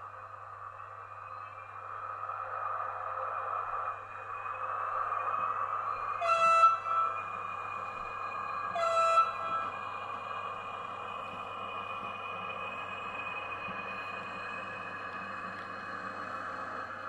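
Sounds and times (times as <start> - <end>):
model locomotive horn: 6.2 - 7.3, 8.7 - 9.7.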